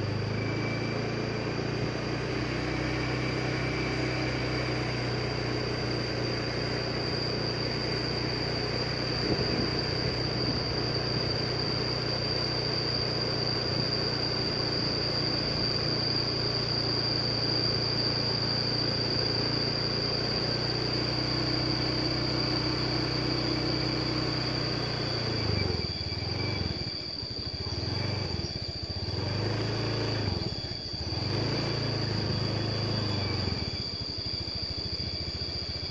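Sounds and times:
vehicle engine running: 0:00.0 - 0:27.0, 0:27.6 - 0:34.0
high-pitched whine: 0:00.0 - 0:35.9.

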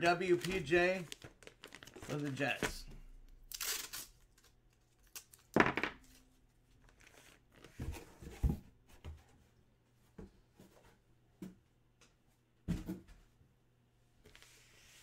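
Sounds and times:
packaging rustling and crinkling: 0:00.2 - 0:02.8.

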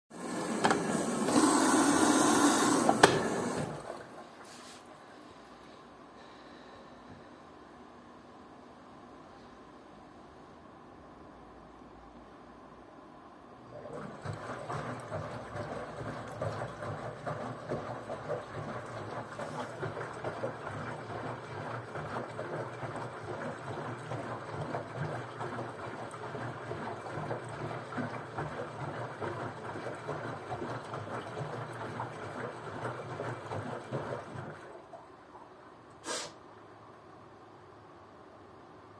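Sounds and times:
water sloshing in washing machine: 0:00.1 - 0:05.6, 0:13.7 - 0:35.8.

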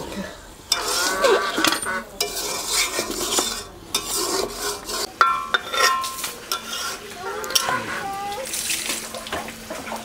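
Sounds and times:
metal spatula scraping a pot: 0:00.7 - 0:08.1.

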